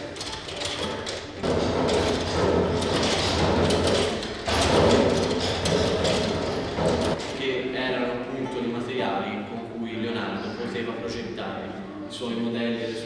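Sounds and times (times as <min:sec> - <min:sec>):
wooden gearing clattering: 0:00.0 - 0:07.4.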